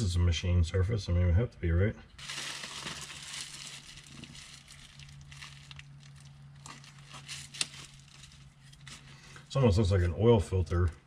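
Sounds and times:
faint steady hum: 0:00.0 - 0:11.0
crinkling and rustling: 0:02.2 - 0:09.3.

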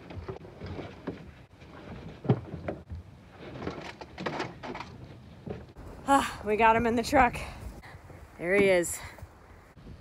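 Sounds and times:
knocks bumps and scrapes: 0:00.0 - 0:05.9.

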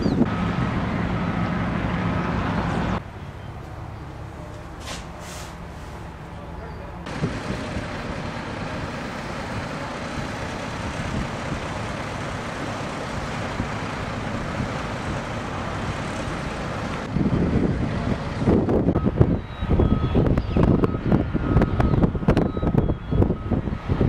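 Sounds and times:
heavy truck engines running: 0:00.0 - 0:24.0
wind buffeting microphone: 0:07.1 - 0:24.0.

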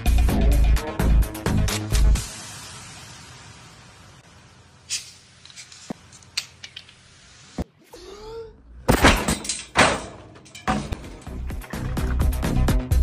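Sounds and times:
metal gate banging and rattling: 0:08.9 - 0:12.7.

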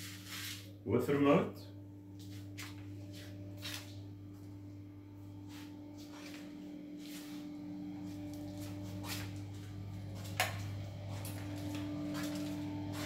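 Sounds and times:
steady low hum: 0:00.0 - 0:13.0
footsteps on tiled floor: 0:02.2 - 0:04.6, 0:05.2 - 0:13.0.

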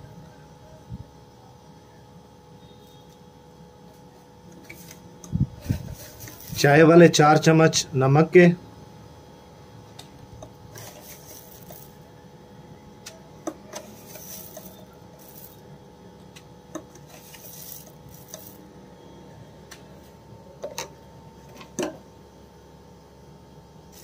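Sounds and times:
salt sprinkling: 0:10.8 - 0:12.0, 0:13.8 - 0:15.6, 0:17.1 - 0:18.6.

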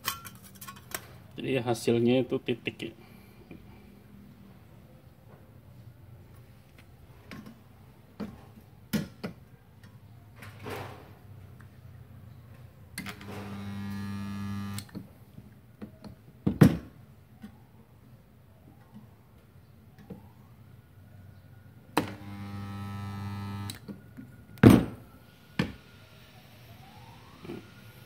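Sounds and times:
electrical buzz of spot welder: 0:13.2 - 0:14.9, 0:22.0 - 0:23.8.

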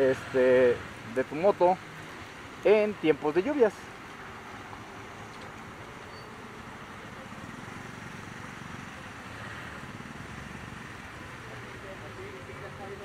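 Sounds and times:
motorcycle engine at low speed: 0:04.0 - 0:13.0.

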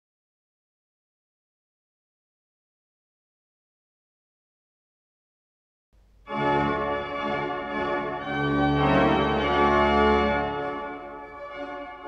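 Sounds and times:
deep organ pedal bass: 0:06.3 - 0:12.0
pipe organ playing chords: 0:06.3 - 0:12.0.

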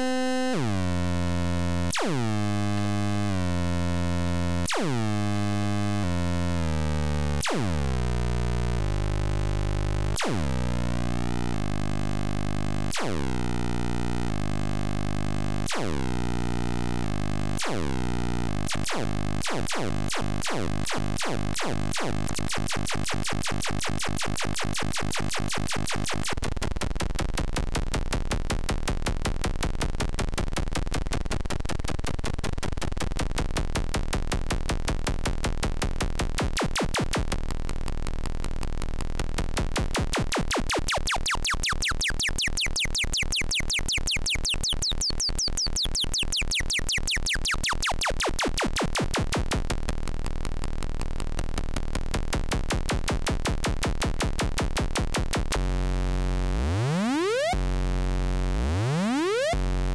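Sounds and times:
synthesizer electronic pulses: 0:00.0 - 0:26.4, 0:40.4 - 0:49.6, 0:55.3 - 0:59.9.

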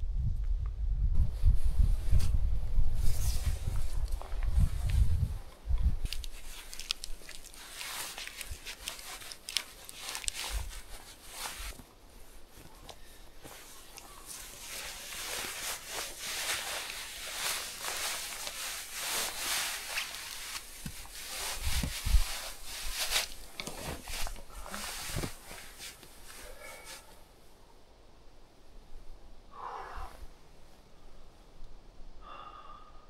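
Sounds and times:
footsteps with rustling: 0:06.0 - 0:27.1.

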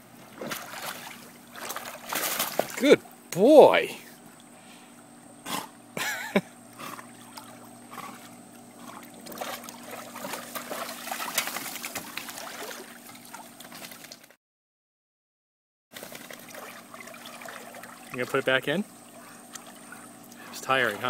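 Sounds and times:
water splashing off dog: 0:00.4 - 0:02.9, 0:06.9 - 0:14.3, 0:16.0 - 0:18.5.

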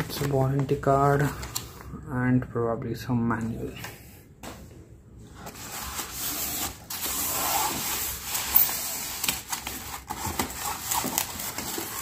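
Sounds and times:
foam rubbing and scraping: 0:05.5 - 0:12.0.

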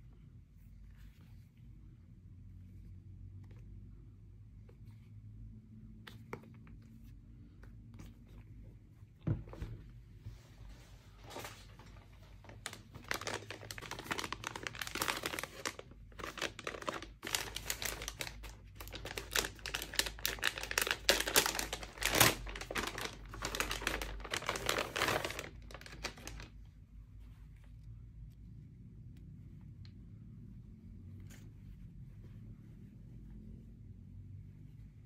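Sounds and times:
packaging crinkling and tearing: 0:12.4 - 0:26.5.

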